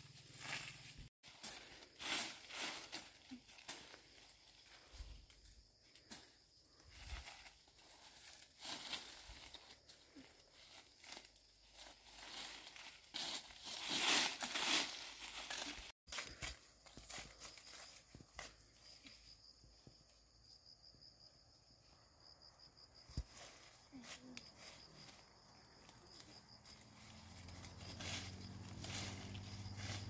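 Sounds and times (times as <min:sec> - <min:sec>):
insect chirring: 0:16.7 - 0:30.0.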